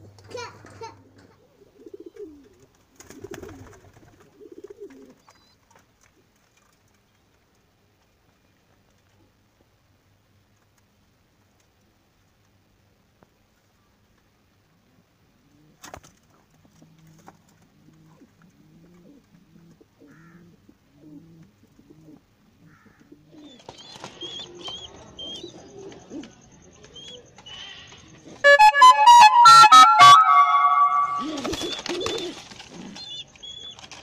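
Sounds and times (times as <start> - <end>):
pigeons cooing: 1.0 - 5.6, 16.7 - 28.4, 31.2 - 34.0
loud music: 28.5 - 31.4.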